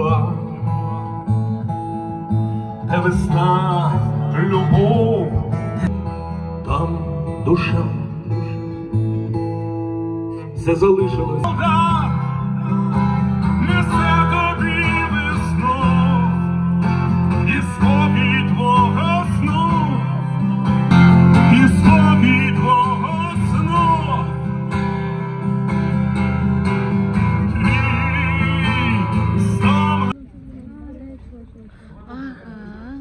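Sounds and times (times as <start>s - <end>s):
man singing: 0.0s - 1.2s, 2.8s - 8.7s, 10.4s - 24.5s, 27.3s - 30.2s
amplified acoustic guitar: 0.0s - 30.2s.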